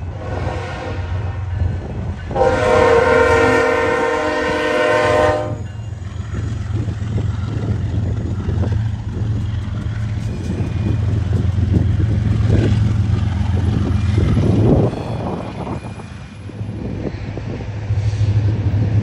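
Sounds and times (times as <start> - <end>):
locomotive air horn: 0.1 - 1.5, 2.3 - 5.7
diesel engines rumbling: 1.1 - 19.0.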